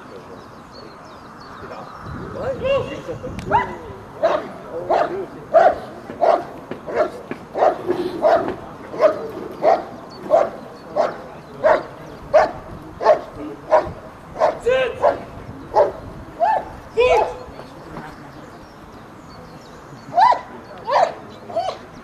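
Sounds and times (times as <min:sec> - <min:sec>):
dog barking sharply: 0:03.5 - 0:15.2.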